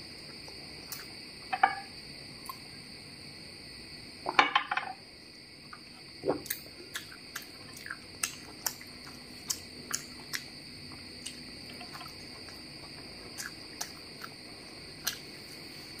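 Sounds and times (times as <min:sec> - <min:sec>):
lip smacks while chewing: 0:06.4 - 0:10.6, 0:13.3 - 0:14.4, 0:15.0 - 0:15.3.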